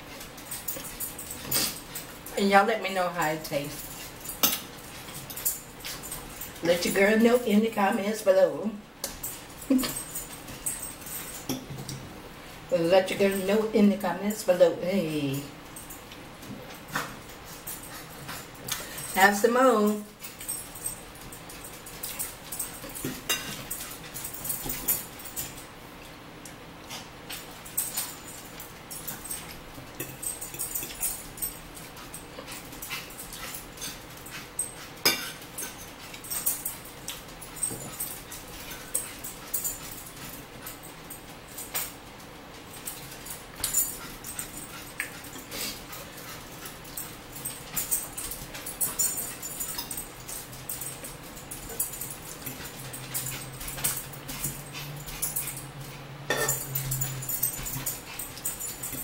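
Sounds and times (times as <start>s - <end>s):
forks scraping on plates: 35.0s - 36.0s, 56.3s - 57.2s.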